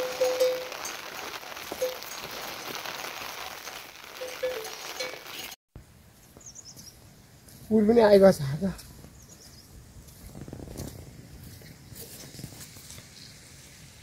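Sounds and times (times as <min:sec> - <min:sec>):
light rain hissing: 0:00.0 - 0:05.6.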